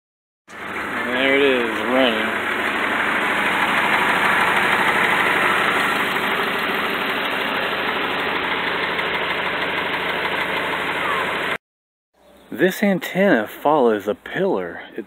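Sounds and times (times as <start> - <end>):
car engine idling: 0.5 - 11.6.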